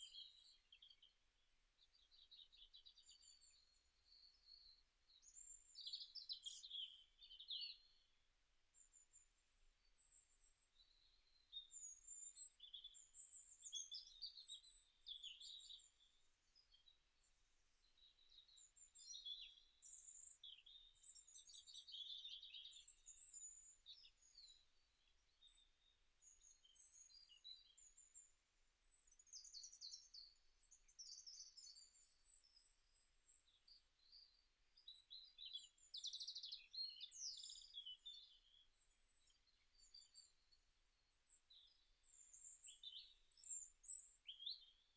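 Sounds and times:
small birds chirping and trilling: 0.0s - 44.9s.

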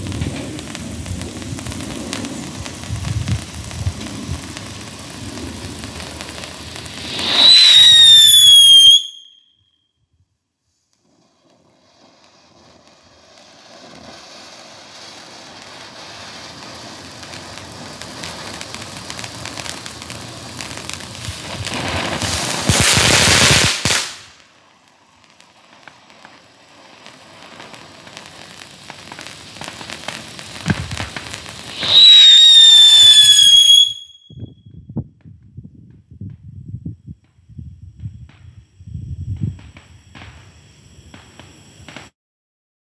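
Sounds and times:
sparks hissing: 0.0s - 9.4s, 10.8s - 34.3s
firework crackles: 0.0s - 9.6s, 10.2s - 42.2s
firework whistle falling in pitch: 7.0s - 9.9s, 30.6s - 34.7s.

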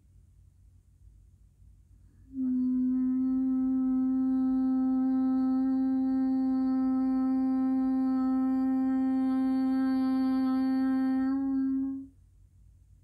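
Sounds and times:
woman humming: 2.3s - 12.1s.

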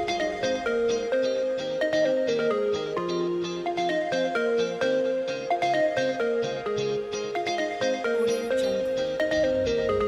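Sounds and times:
gentle plucked melody: 0.0s - 10.0s.

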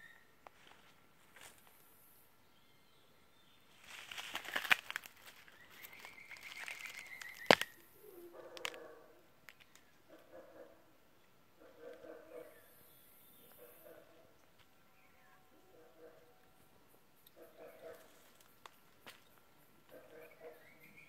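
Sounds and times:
leaves rustling: 3.7s - 8.8s.

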